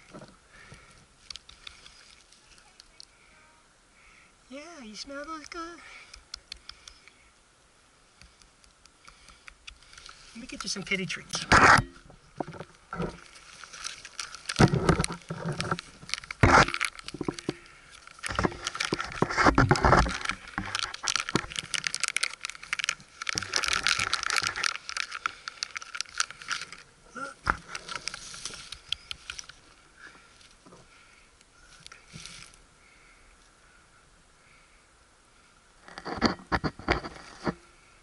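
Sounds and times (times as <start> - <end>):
gear bag rustling and crinkling: 12.4 - 26.9, 27.5 - 30.7.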